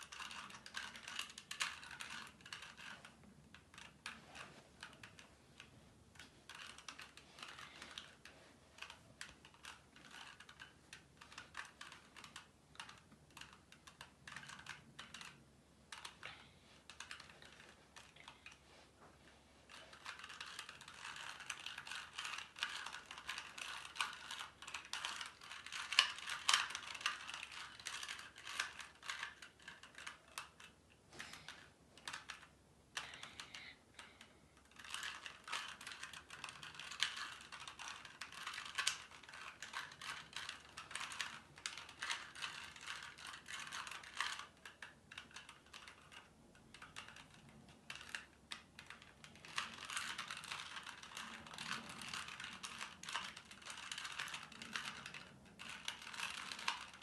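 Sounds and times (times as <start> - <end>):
puzzle cube plastic clicking: 0.0 - 16.3, 19.7 - 30.8, 31.5 - 57.0.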